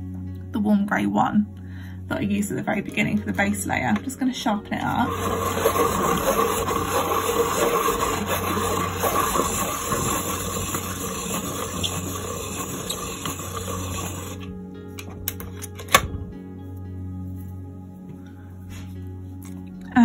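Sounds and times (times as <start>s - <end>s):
pencil sharpener grinding: 4.8s - 14.5s.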